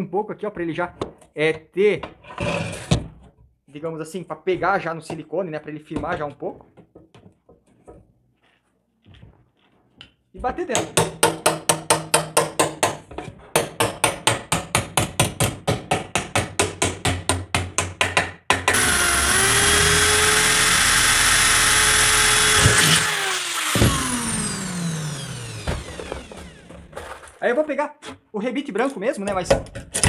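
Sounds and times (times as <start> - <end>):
electric drill boring into metal: 18.7 - 26.9.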